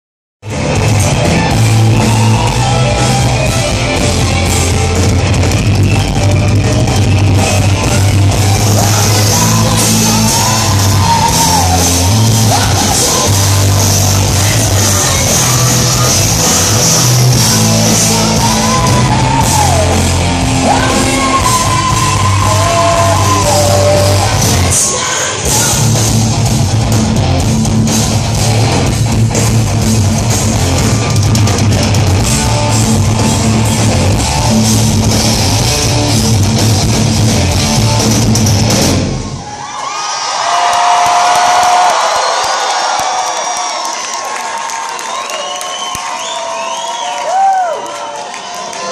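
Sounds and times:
hard rock band playing live: 0:00.4 - 0:39.5.

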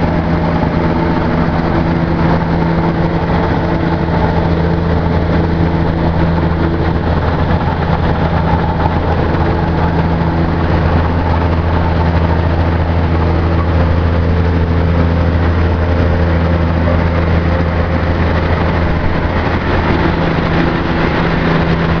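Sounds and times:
crushing plant diesel drone: 0:00.0 - 0:22.0.

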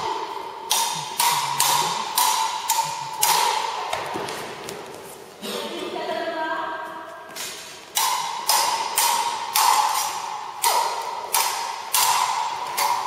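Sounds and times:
swords clashing: 0:00.0 - 0:04.5, 0:07.4 - 0:13.0.

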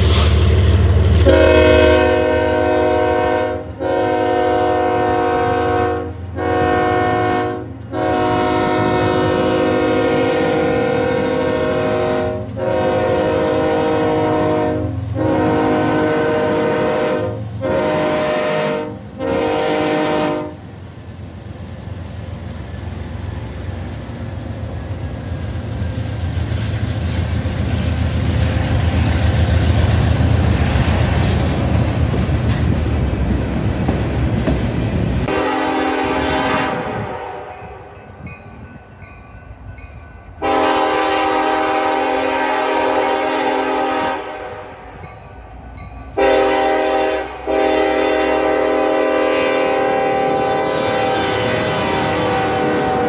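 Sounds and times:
locomotive air horn blasts: 0:01.2 - 0:20.7, 0:35.2 - 0:38.0, 0:40.4 - 0:44.9, 0:46.2 - 0:53.0
freight cars rumbling and clattering: 0:24.4 - 0:35.3.

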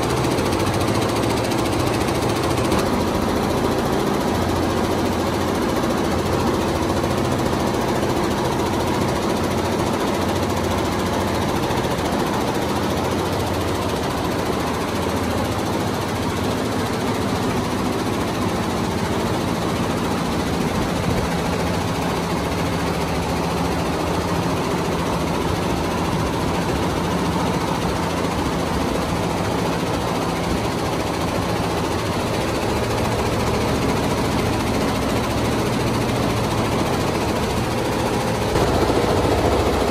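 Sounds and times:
embroidery machine clatter: 0:00.0 - 0:39.9
low machine drone: 0:36.2 - 0:39.9.

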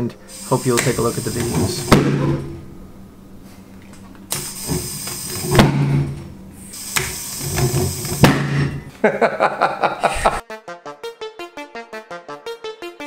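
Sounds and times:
hissing blast with low hum: 0:00.0 - 0:02.8, 0:04.3 - 0:08.9.

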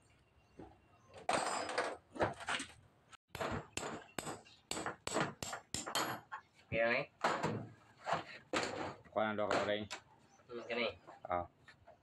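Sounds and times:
hammer tapping metal: 0:03.4 - 0:06.2.

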